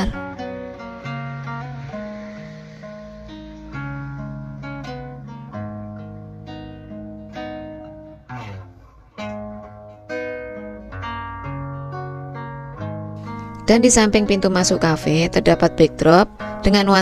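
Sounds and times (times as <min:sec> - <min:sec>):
acoustic guitar playing: 0:00.0 - 0:17.0.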